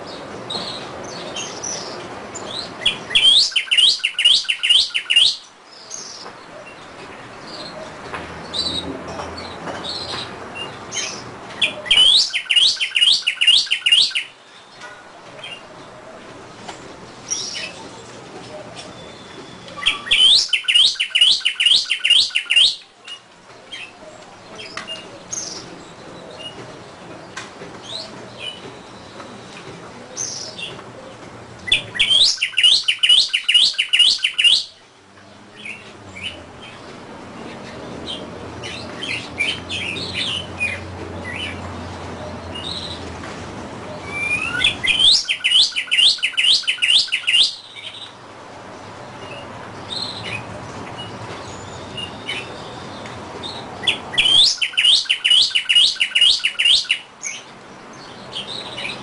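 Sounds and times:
cardinal whistling song: 2.8s - 5.5s, 11.6s - 14.4s, 18.9s - 22.9s, 31.7s - 34.8s, 44.0s - 48.0s, 53.8s - 57.1s.

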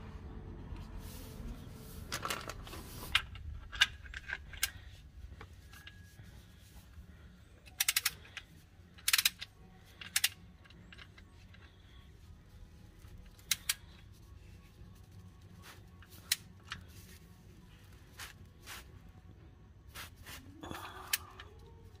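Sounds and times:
ratchet wrench clicking: 7.6s - 11.6s
metallic clicks: 7.6s - 11.7s, 13.3s - 14.0s.

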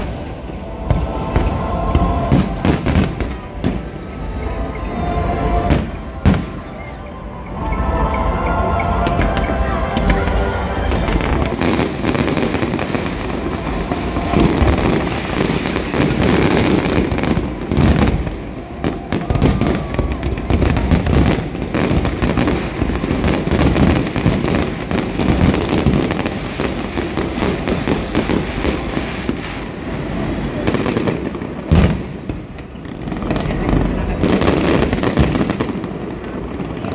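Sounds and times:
fireworks bangs and crackling: 0.0s - 36.9s.

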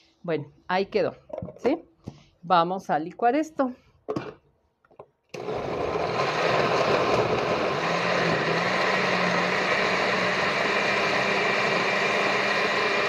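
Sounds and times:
blender running: 5.4s - 13.0s.

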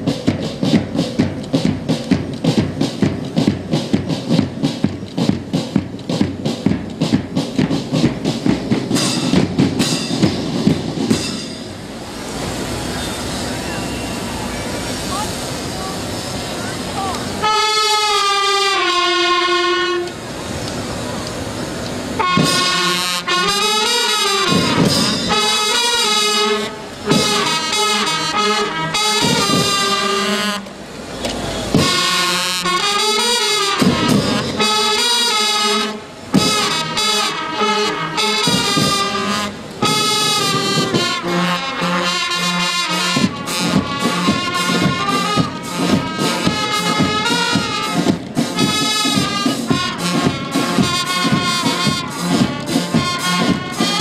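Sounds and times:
steady drumbeat: 0.0s - 12.0s, 21.9s - 30.4s, 31.6s - 54.0s
brass and drum band playing: 0.0s - 54.0s.

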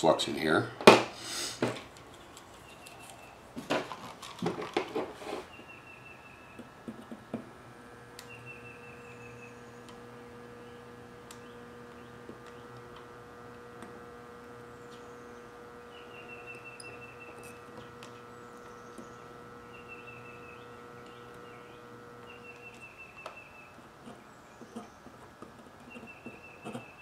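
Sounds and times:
soldering gun humming: 4.9s - 27.0s
high chirping trills: 8.2s - 9.9s, 14.7s - 23.8s, 25.8s - 27.0s.

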